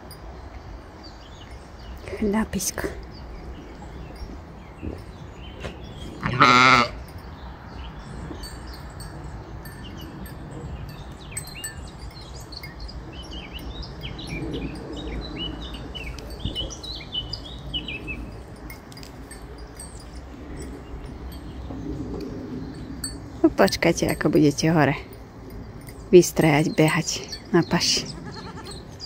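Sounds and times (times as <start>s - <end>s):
sheep bleating: 6.2s - 7.0s, 28.2s - 28.8s.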